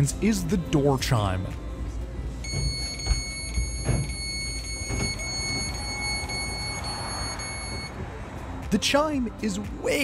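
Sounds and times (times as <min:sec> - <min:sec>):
high-pitched electronic door chime: 0:02.4 - 0:08.0.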